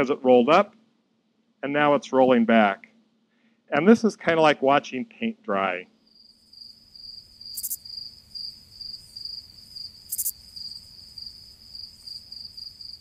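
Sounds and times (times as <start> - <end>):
crickets chirping: 6.0 - 13.0.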